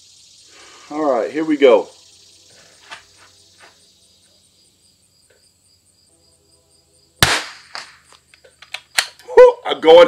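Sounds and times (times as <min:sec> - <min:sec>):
rifle shot: 0:07.2 - 0:08.1.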